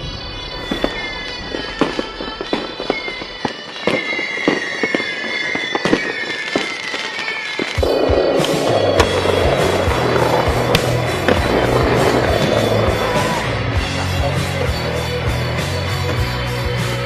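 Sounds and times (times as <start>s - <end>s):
falling whistle tones: 0.0s - 10.8s
fireworks popping and cracking: 0.0s - 14.0s
music: 0.0s - 17.0s.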